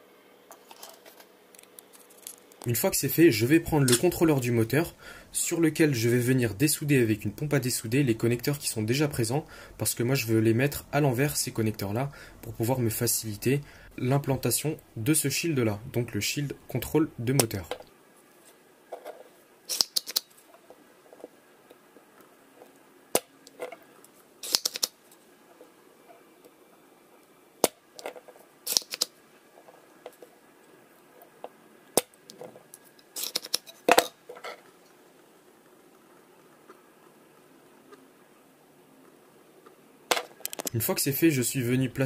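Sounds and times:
desoldering pump snapping: 0:24.4 - 0:24.9.

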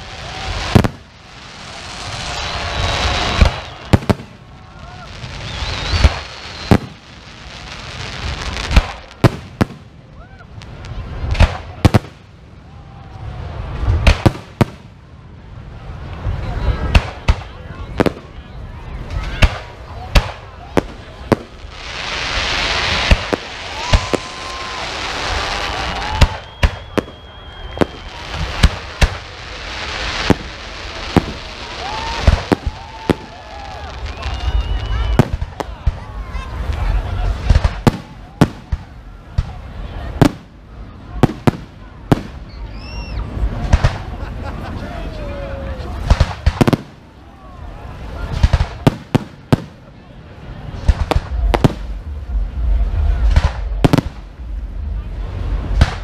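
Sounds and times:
firework hiss: 0:00.0 - 0:12.4, 0:19.0 - 0:44.2.

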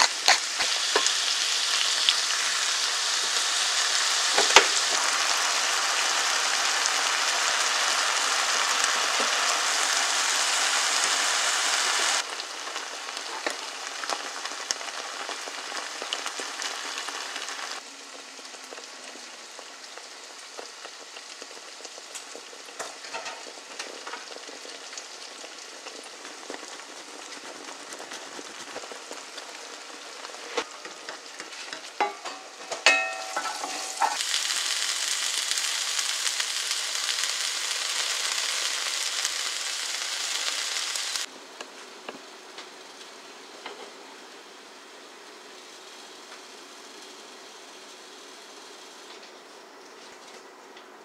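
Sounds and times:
sauce sizzling in a frying pan: 0:00.0 - 0:50.0
spatula knocking and scraping pan: 0:30.6 - 0:34.2.

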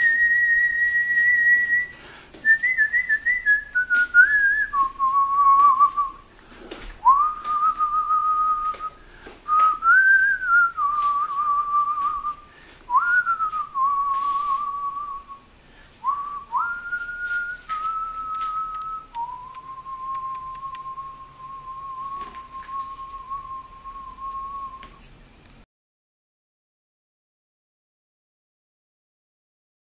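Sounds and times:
slow whistled melody: 0:00.0 - 0:06.2, 0:07.0 - 0:15.4, 0:16.0 - 0:25.0.

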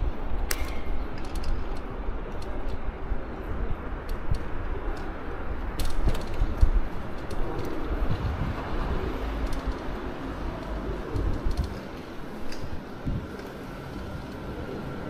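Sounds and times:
bicycle rolling over stone paving: 0:05.6 - 0:14.6.

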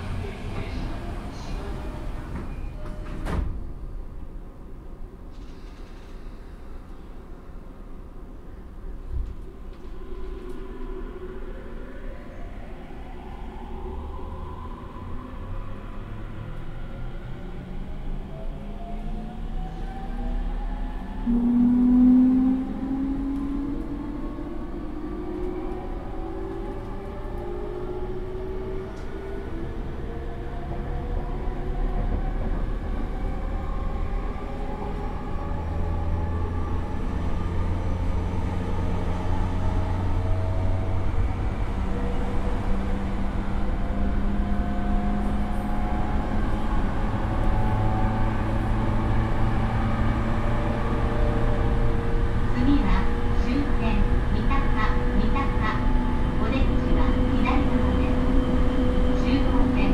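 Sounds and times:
wheel and rail rumble: 0:00.0 - 0:59.9
train motor tones rising in pitch: 0:21.2 - 0:24.3.

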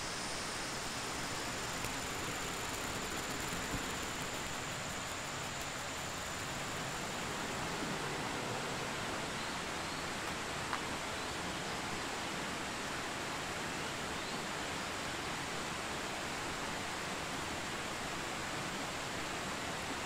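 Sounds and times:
river flowing over rocks: 0:00.0 - 0:13.8.

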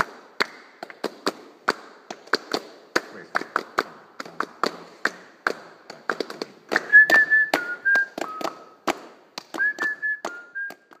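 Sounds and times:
irregular sharp taps: 0:00.0 - 0:11.0
person whistling: 0:06.8 - 0:08.8, 0:09.6 - 0:11.0.

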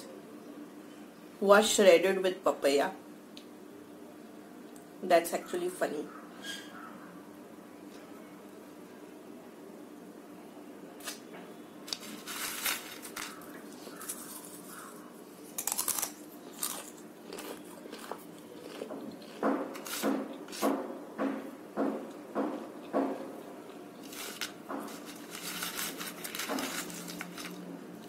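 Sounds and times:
faint steady hum: 0:00.0 - 0:28.0
chewing crunchy food: 0:11.9 - 0:20.6.

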